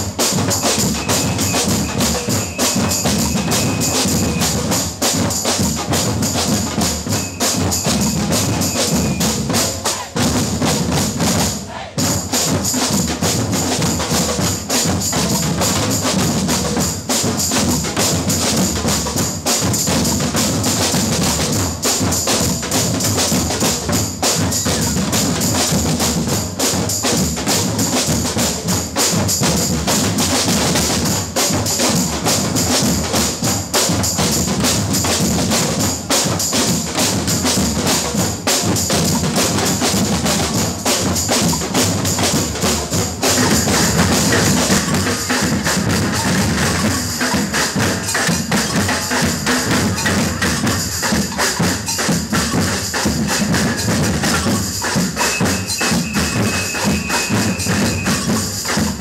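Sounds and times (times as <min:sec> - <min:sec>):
snare drums: 0:00.0 - 0:59.0
surdo bass drums: 0:36.7 - 0:59.0.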